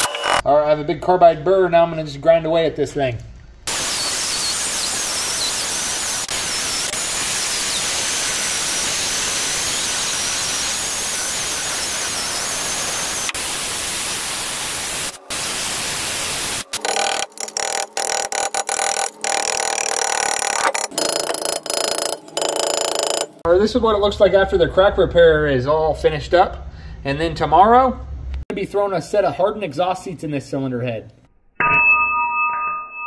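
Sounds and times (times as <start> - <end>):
die grinder grinding metal: 0.0 - 0.4, 3.7 - 13.5, 16.2 - 23.5.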